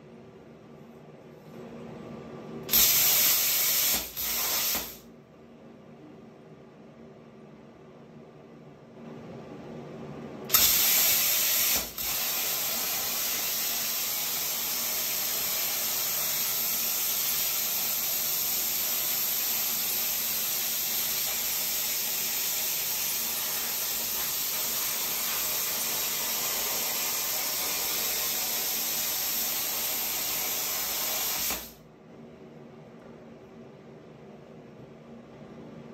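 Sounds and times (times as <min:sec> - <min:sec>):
plasma cutter arc hissing: 0:02.7 - 0:05.1, 0:10.5 - 0:31.8.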